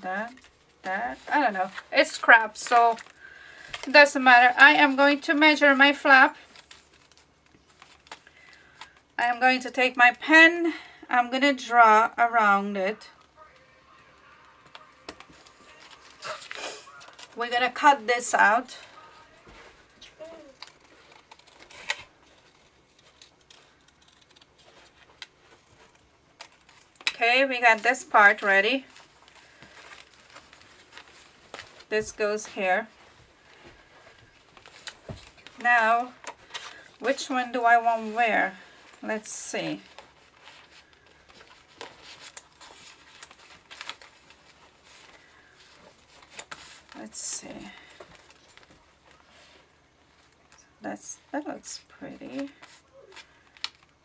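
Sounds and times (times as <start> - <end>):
paper rustling: 13.0 - 17.8, 18.4 - 50.6, 52.1 - 53.9.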